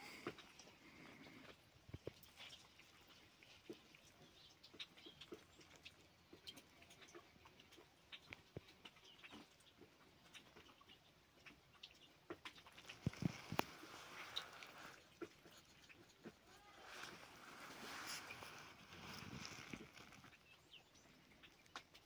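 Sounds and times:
small birds chirping: 0:00.0 - 0:22.0
faint clicks: 0:11.5 - 0:15.9.

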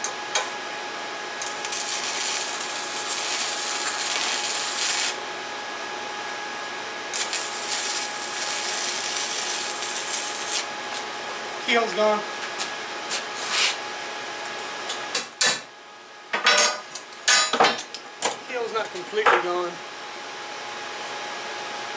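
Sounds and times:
welding arc crackling hiss: 0:01.4 - 0:05.2, 0:07.1 - 0:11.1.

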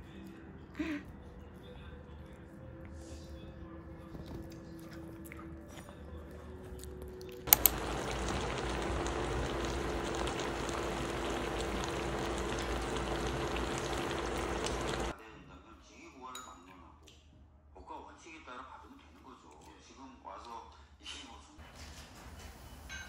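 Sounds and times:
quick clicks: 0:07.5 - 0:08.7
pan of stew bubbling: 0:07.5 - 0:15.1.

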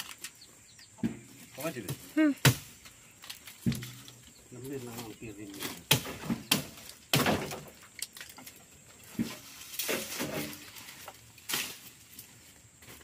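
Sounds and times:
axe chopping wood: 0:01.8 - 0:02.8, 0:05.6 - 0:07.8.

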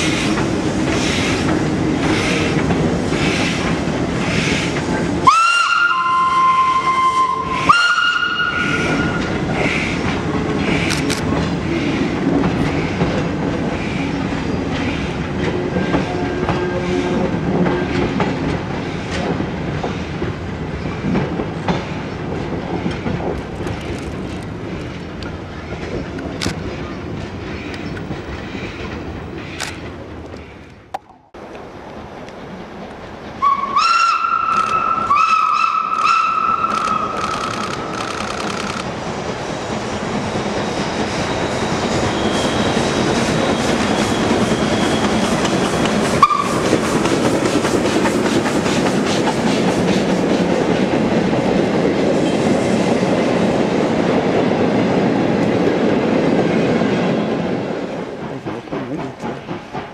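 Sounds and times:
steam locomotive chuffing: 0:00.0 - 0:30.6, 0:32.0 - 0:59.9
steam whistle: 0:05.2 - 0:09.4, 0:33.4 - 0:37.1, 0:46.2 - 0:46.6
carriages rattling: 0:35.8 - 0:39.2, 0:57.1 - 0:59.9.

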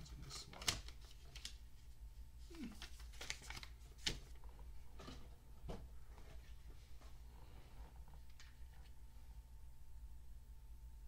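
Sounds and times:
paper rustling: 0:00.3 - 0:01.9, 0:02.5 - 0:05.2.

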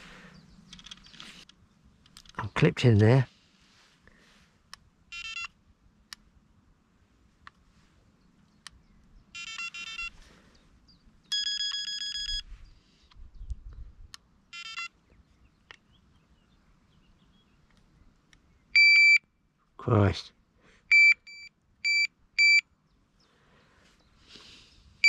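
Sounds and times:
electronic bite alarm beeps: 0:09.4 - 0:10.1, 0:11.3 - 0:12.5, 0:18.8 - 0:19.2, 0:20.9 - 0:22.6.

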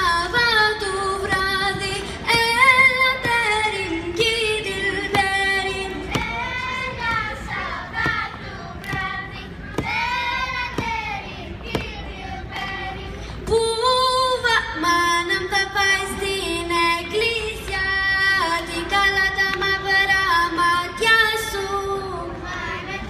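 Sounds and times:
girl singing a cappella: 0:00.0 - 0:23.0.

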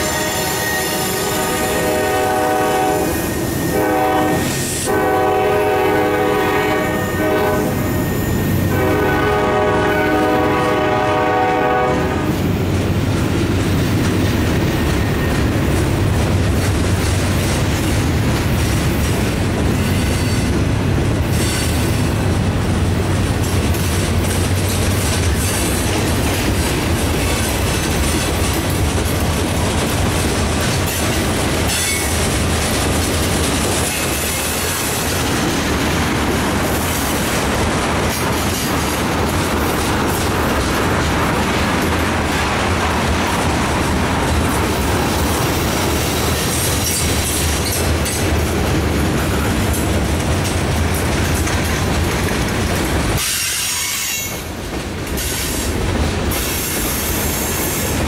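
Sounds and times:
train air horn blasts: 0:00.0 - 0:12.4
wheels clicking over rail joints: 0:23.2 - 0:58.0.

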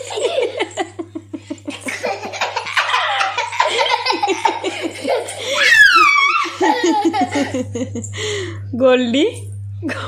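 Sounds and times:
young child laughing: 0:01.8 - 0:07.6.

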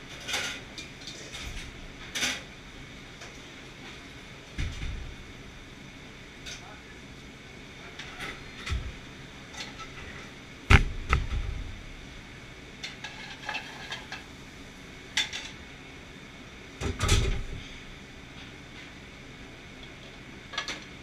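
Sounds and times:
kitchen background noise: 0:12.8 - 0:14.4
utensils clanking on steel pans: 0:12.9 - 0:14.3.

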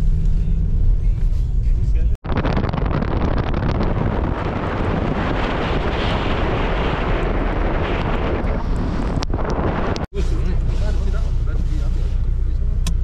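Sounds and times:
wind buffeting microphone: 0:02.2 - 0:11.2.

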